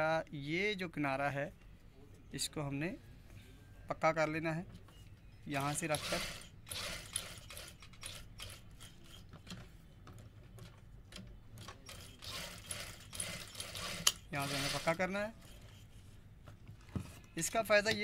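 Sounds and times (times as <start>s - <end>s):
sewing machine motor hum: 11.9s - 15.0s.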